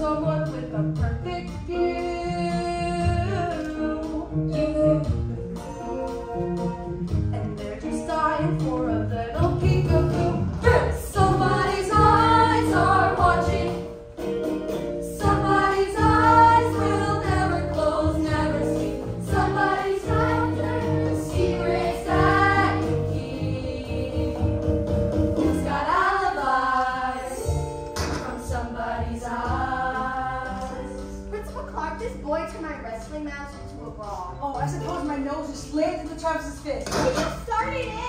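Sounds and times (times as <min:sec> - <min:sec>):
instrumental accompaniment: 0:00.0 - 0:38.0
chorus of young voices singing: 0:10.6 - 0:14.0, 0:15.1 - 0:24.7, 0:25.4 - 0:31.2.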